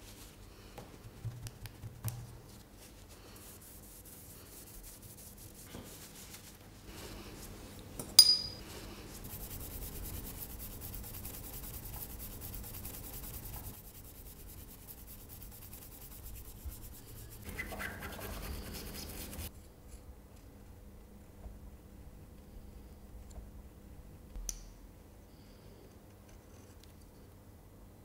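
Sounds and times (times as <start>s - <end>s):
paintbrush scrubbing on paper: 2.5s - 7.7s, 8.7s - 19.5s
sharp clink: 8.2s - 8.6s.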